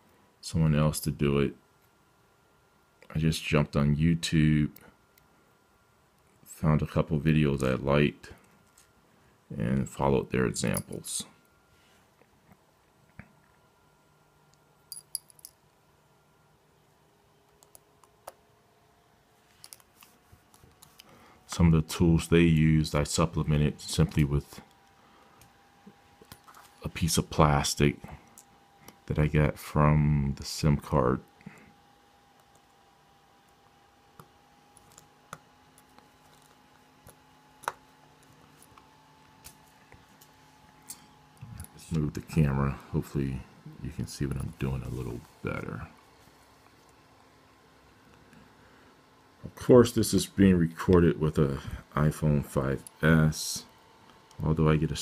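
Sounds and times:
faint steady hum: 0.0s - 55.0s.

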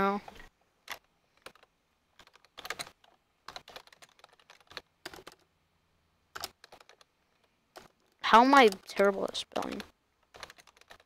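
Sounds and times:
typing on computer keyboard: 0.9s - 5.4s, 6.4s - 7.1s, 7.8s - 11.0s.

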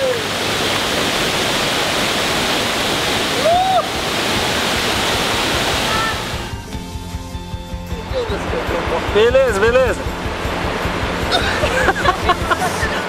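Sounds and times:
waterfall rushing: 0.0s - 7.3s, 8.0s - 13.0s
person shouting: 3.4s - 3.9s.

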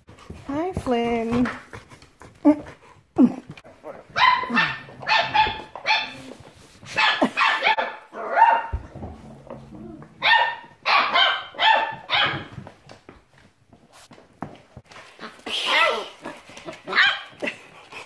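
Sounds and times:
puppy growl: 2.4s - 5.1s, 15.1s - 18.0s
puppies yapping: 4.1s - 12.5s, 15.1s - 17.6s.

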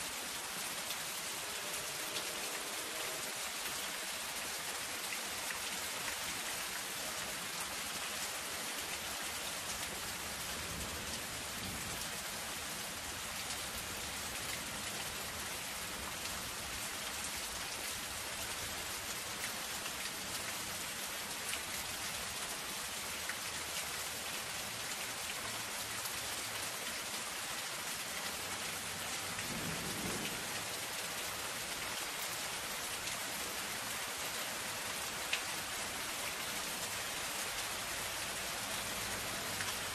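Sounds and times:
rain on a metal roof: 0.0s - 39.9s.

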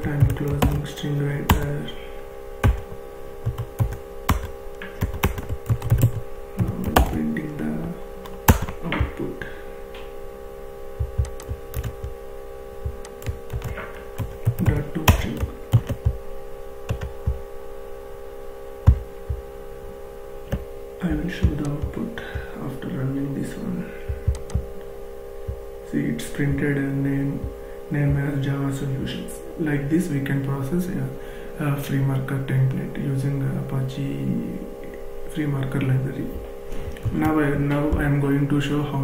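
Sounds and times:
computer keyboard typing: 0.0s - 0.9s, 1.5s - 1.7s, 2.6s - 7.2s, 8.2s - 8.8s, 11.0s - 12.2s, 12.8s - 16.2s, 16.9s - 17.4s, 18.8s - 19.4s, 24.1s - 24.7s
steady electrical hum: 0.0s - 39.0s.

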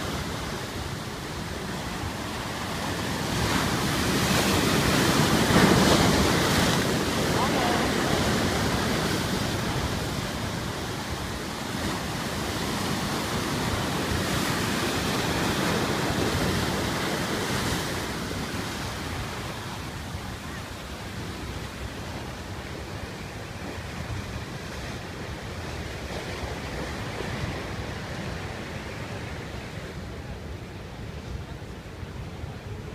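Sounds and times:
surf breaking on rocks: 0.0s - 19.9s.

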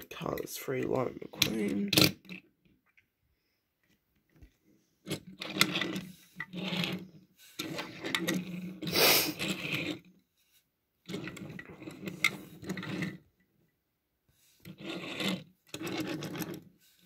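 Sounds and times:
toy cars shifted on wooden table: 1.4s - 2.5s, 5.0s - 10.1s, 11.1s - 13.3s, 14.6s - 16.8s
hand rubbing against camera: 8.8s - 9.6s.

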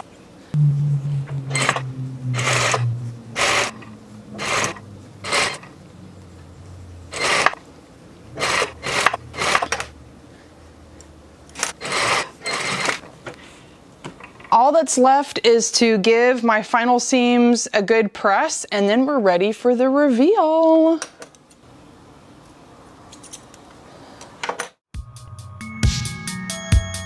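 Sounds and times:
low hum: 0.6s - 10.9s.

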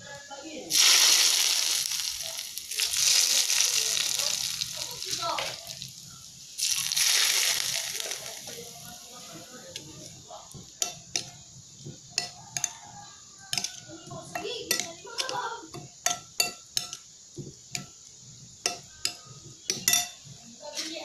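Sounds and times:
metal spoon clinking glass bowl: 10.8s - 11.4s, 12.2s - 12.8s, 13.5s - 17.1s, 17.7s - 18.0s, 18.6s - 20.3s.

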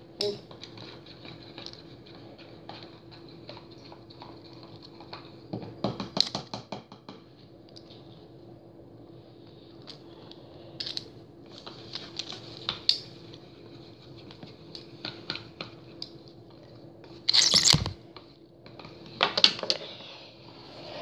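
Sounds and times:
faint steady hum: 7.1s - 21.0s
ripcord rasping burst: 17.3s - 18.0s.

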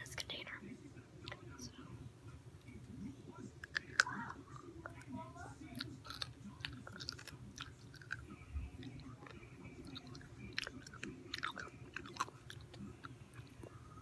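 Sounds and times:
pickle crunching: 3.6s - 14.0s.

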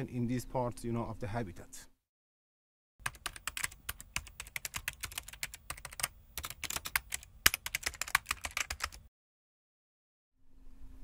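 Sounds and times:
keyboard typing: 3.0s - 9.0s
faint steady hum: 3.1s - 9.0s, 10.4s - 11.0s.

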